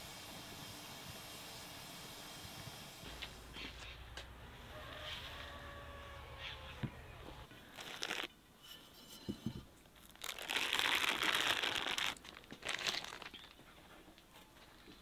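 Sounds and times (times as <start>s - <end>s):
baking paper rustling and crinkling: 7.6s - 8.3s, 10.0s - 13.8s.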